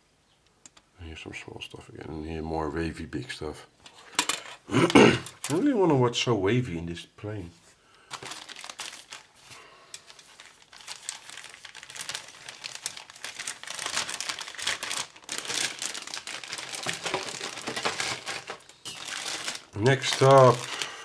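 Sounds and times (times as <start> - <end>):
plastic bag crinkling: 5.0 - 5.8, 8.0 - 21.0.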